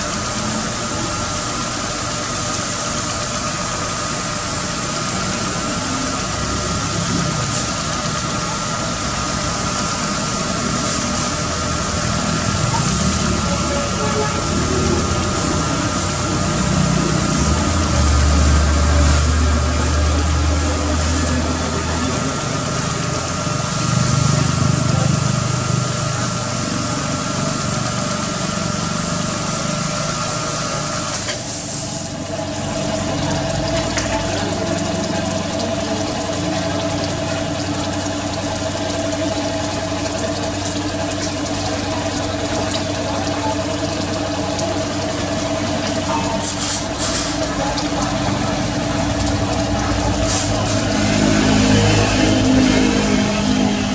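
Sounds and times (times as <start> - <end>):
pressure washer spraying: 0.0 - 32.4, 45.2 - 53.9
steady machine hum: 0.0 - 53.9.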